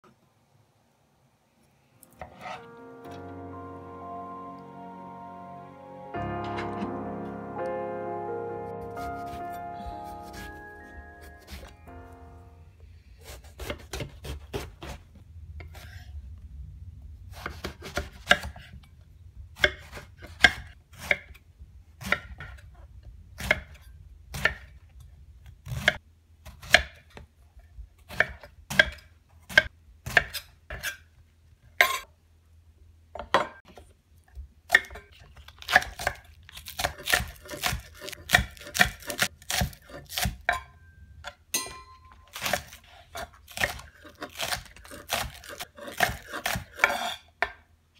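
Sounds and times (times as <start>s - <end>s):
knife chopping on wooden board: 13.2s - 15.0s, 35.6s - 40.6s, 42.3s - 47.2s.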